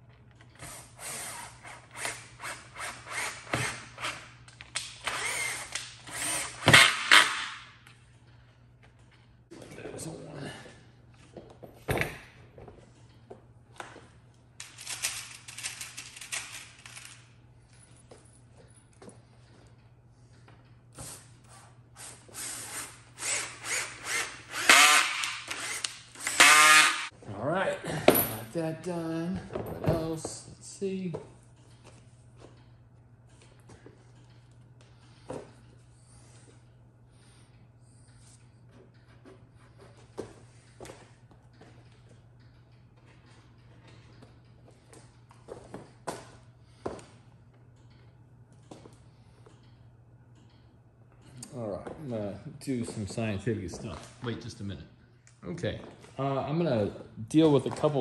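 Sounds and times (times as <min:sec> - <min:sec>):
power drill driving screws: 0:00.6 - 0:03.8, 0:05.0 - 0:07.4, 0:22.7 - 0:27.1.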